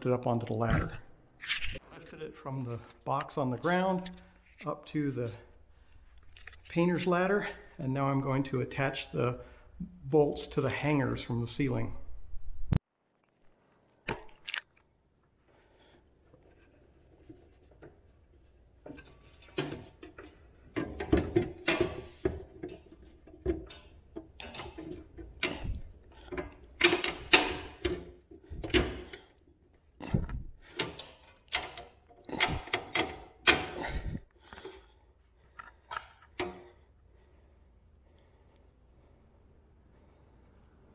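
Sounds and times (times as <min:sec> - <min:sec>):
metal clanks and rattles: 0:18.8 - 0:29.4.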